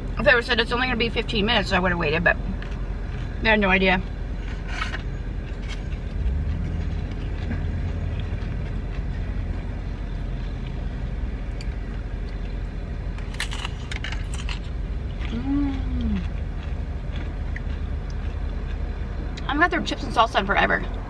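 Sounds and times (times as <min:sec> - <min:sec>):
low rumble of road traffic: 0:00.0 - 0:21.0
person humming while chewing: 0:15.2 - 0:16.4.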